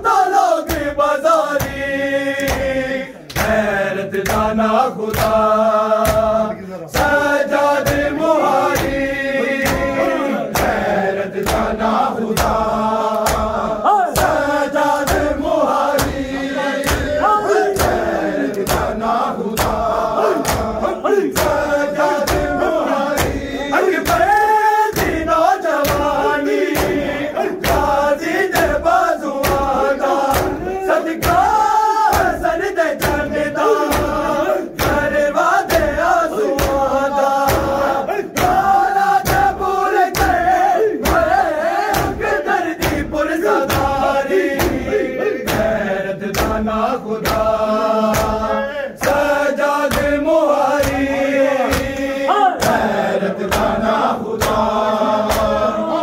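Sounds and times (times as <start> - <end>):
men chanting together: 0.0 - 56.0
hands slapping bare chests: 0.7 - 53.8, 54.4 - 55.6.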